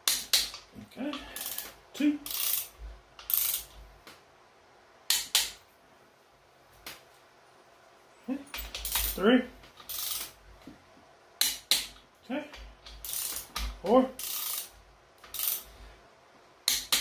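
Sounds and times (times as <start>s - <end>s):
torque wrench ratcheting: 1.2s - 3.8s, 8.7s - 9.2s, 9.8s - 10.4s, 12.9s - 15.7s
torque wrench clicks: 1.4s - 3.7s, 8.7s - 9.2s, 9.8s - 10.3s, 12.8s - 15.7s, 16.7s - 17.0s.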